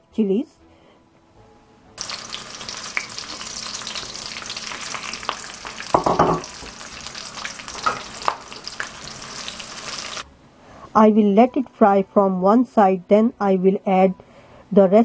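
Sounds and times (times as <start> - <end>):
seeds crackling while frying: 2.0 - 10.2
chilies sizzling in hot oil: 2.0 - 10.3.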